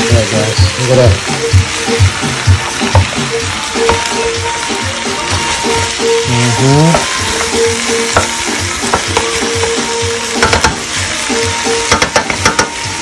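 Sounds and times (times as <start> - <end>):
background music with steady beat: 0.0 - 13.0
meat sizzling in a pot: 0.0 - 13.0
wooden spoon knocking on pot: 6.9 - 7.1, 8.1 - 9.7, 10.4 - 10.9, 11.8 - 12.8.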